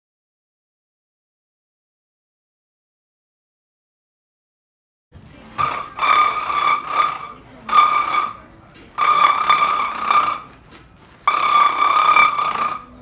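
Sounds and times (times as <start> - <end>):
balloon reedy tone: 5.6 - 8.4, 9.0 - 10.6, 11.3 - 12.9.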